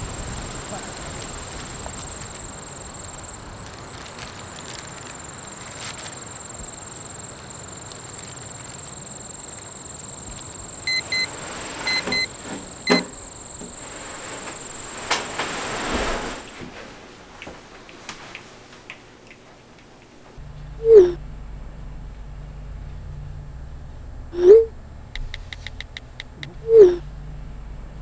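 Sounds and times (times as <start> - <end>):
digital alarm clock beeping: 0.0 - 15.0
thin high whine: 0.0 - 17.2, 20.3 - 28.0.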